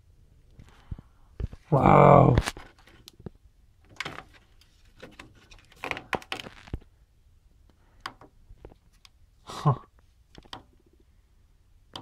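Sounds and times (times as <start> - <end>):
cable rustling: 2.3 - 6.9.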